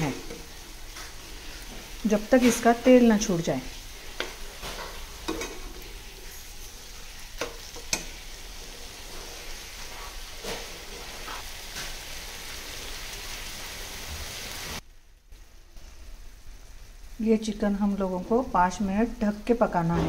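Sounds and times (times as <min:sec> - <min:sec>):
chicken sizzling in a pan: 0:00.0 - 0:20.0
spatula scraping a pan: 0:03.7 - 0:12.0.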